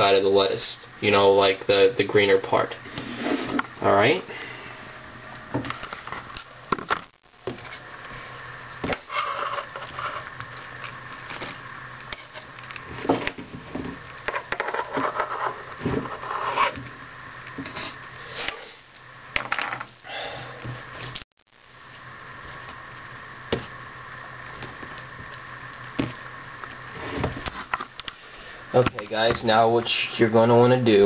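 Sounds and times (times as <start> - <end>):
knife scraping food on countertop: 15.0 - 16.8.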